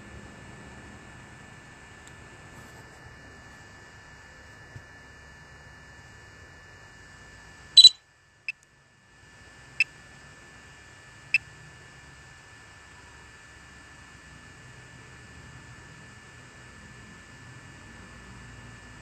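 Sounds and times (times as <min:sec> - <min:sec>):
faint electronic hum: 0:00.0 - 0:19.0.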